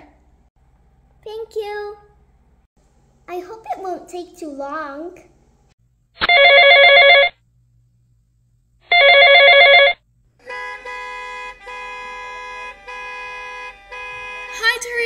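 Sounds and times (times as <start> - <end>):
phone ringing: 6.2 - 7.4, 8.9 - 10.0
car horn blasts: 10.4 - 15.0.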